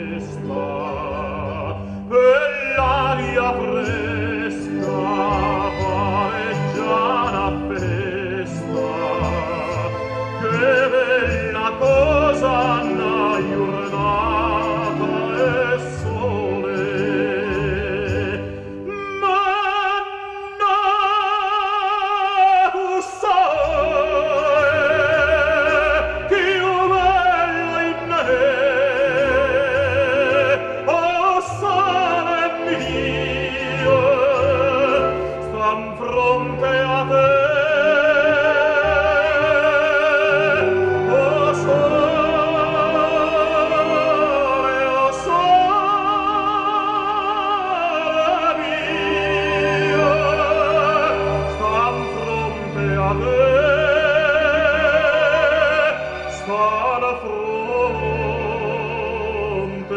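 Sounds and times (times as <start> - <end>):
instrumental accompaniment: 0.0 - 59.9
operatic singing with vibrato: 0.0 - 59.9.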